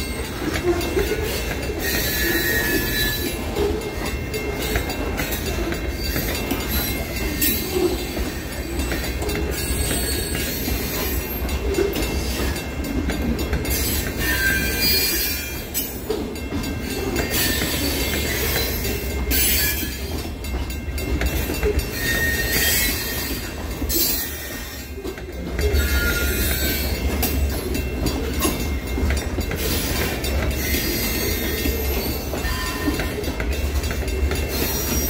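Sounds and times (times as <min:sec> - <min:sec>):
high wheel squeals: 0:00.0 - 0:04.7, 0:13.7 - 0:16.0, 0:21.9 - 0:24.9
freight train rumbling past: 0:00.0 - 0:35.0
wheels clacking over rail joints: 0:00.0 - 0:35.0.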